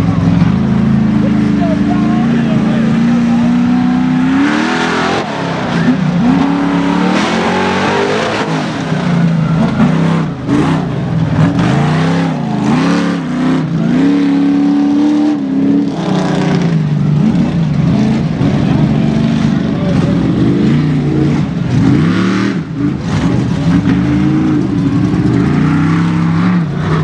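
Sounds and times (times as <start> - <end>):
truck engine revving: 0.0 - 27.0.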